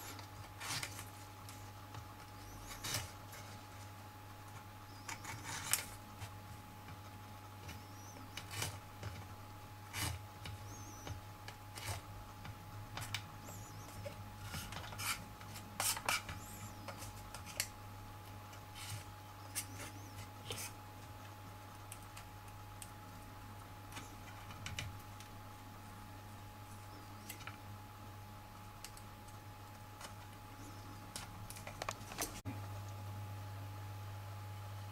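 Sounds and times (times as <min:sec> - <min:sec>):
knife cutting rind on board: 0:14.5 - 0:17.6.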